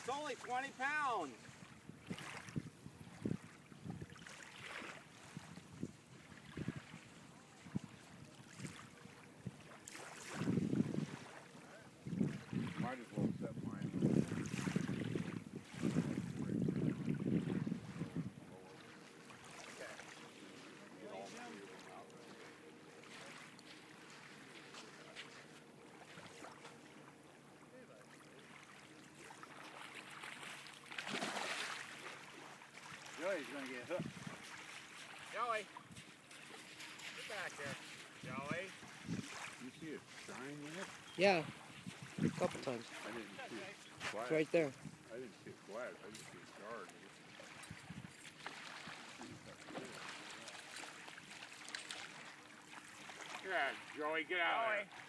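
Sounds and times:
light water noise: 0.0 - 55.0
fish splashing: 28.4 - 33.2.

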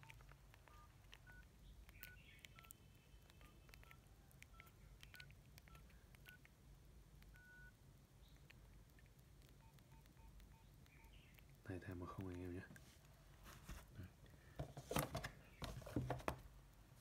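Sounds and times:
phone keypad beeps: 0.0 - 6.5, 7.3 - 7.8, 9.6 - 11.3.

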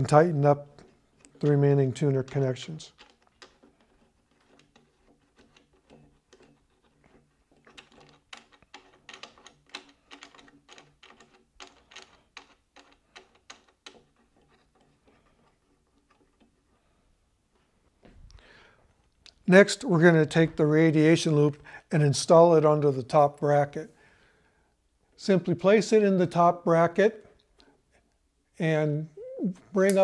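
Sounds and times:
hands clicking and tapping on metal: 7.6 - 14.9.

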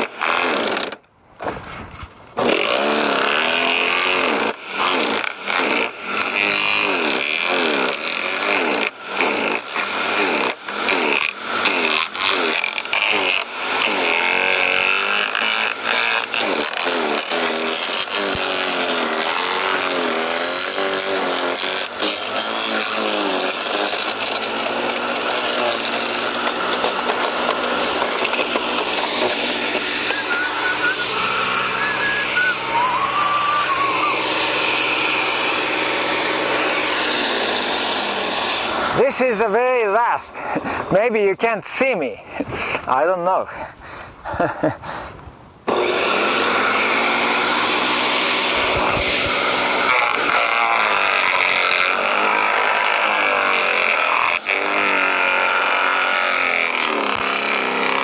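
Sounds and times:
garden shredder chewing branches: 0.0 - 45.0, 45.7 - 58.0.

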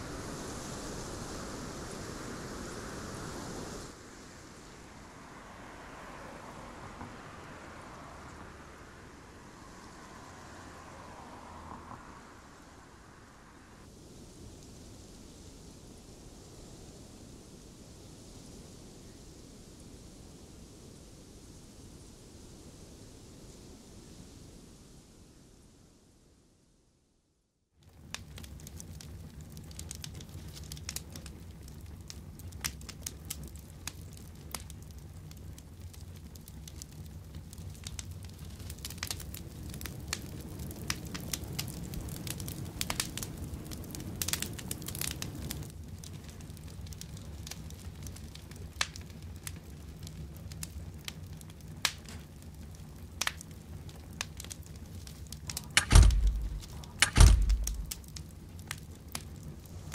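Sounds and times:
crackling and rustling: 27.8 - 59.9
loud thumps: 55.8 - 57.9.

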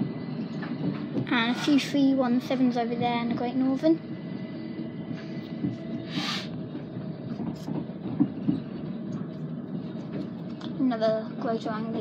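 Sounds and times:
train wheels rumbling on rails: 0.0 - 12.0
short hiss: 6.1 - 6.5.

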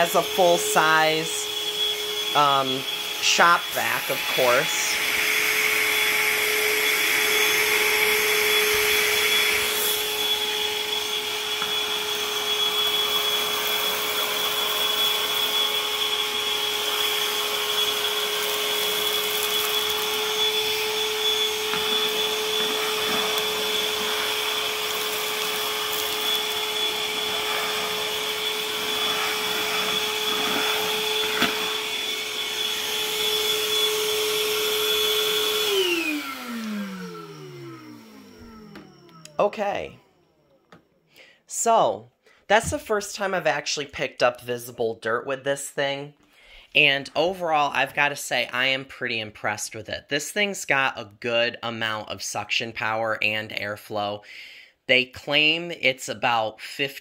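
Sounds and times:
vacuum motor whine: 0.0 - 40.9.

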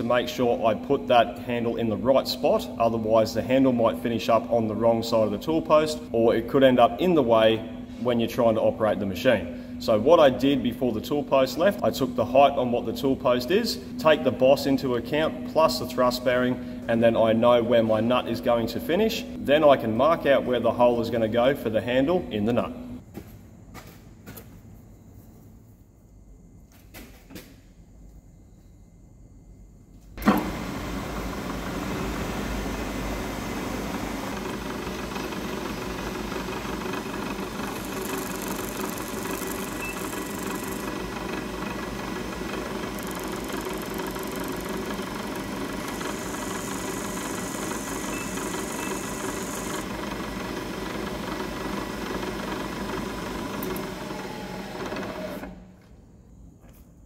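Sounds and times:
milling machine spindle running: 30.2 - 55.6.

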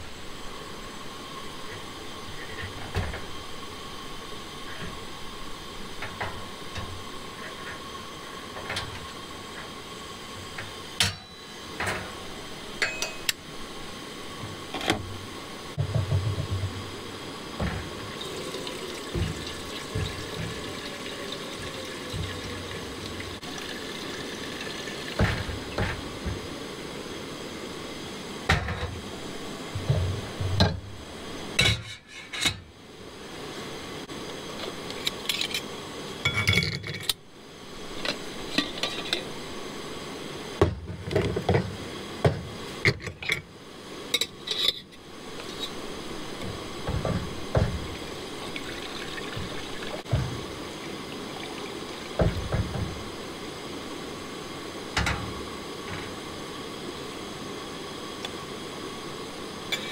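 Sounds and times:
pots and mugs clinking: 12.8 - 13.4, 17.6 - 26.0, 36.2 - 37.2, 38.0 - 39.3, 44.1 - 45.8, 46.4 - 50.4, 51.2 - 53.0.

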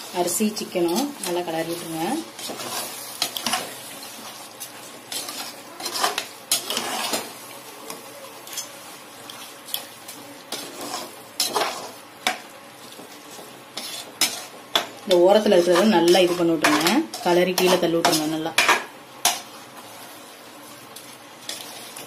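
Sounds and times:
ladle scraping metal pot: 5.1 - 7.3.

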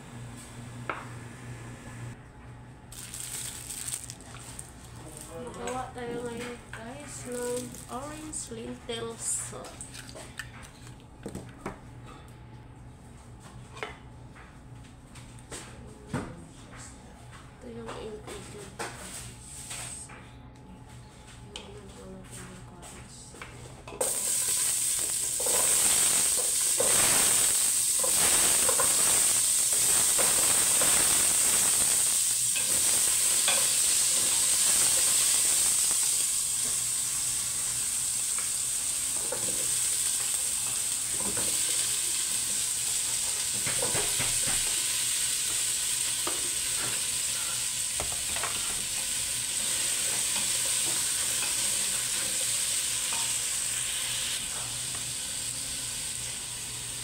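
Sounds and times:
vegetables sizzling in oil: 2.9 - 4.1, 24.0 - 57.0.

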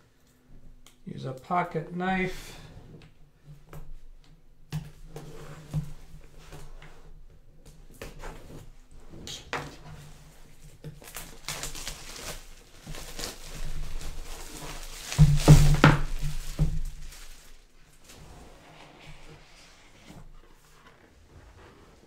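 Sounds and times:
cellophane crinkling: 10.9 - 18.1.

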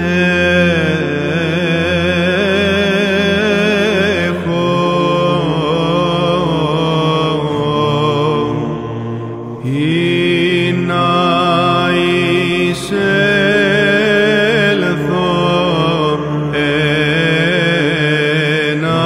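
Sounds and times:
low sustained vocal drone: 0.0 - 19.0
man singing chant: 0.0 - 19.0.

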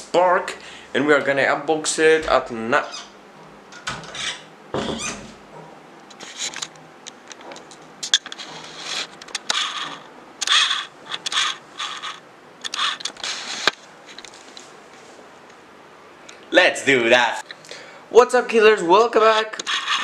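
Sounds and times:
scraping and rubbing handling noise: 2.3 - 15.3, 19.5 - 20.0.

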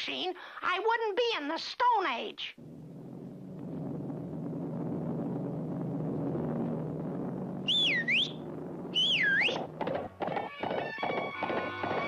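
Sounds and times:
low steady drone: 2.5 - 12.0
swooping cartoon whistles: 7.6 - 9.7.

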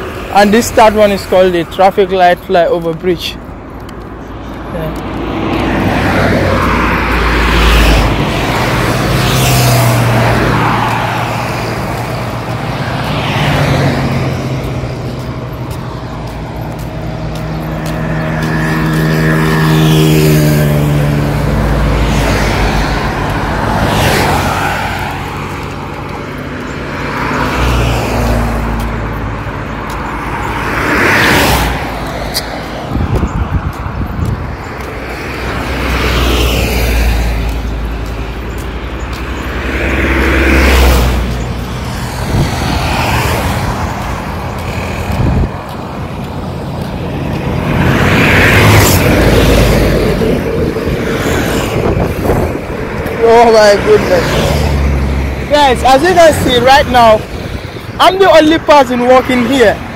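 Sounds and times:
cars passing on highway: 0.0 - 59.9
vehicle engine hum: 0.0 - 59.9.

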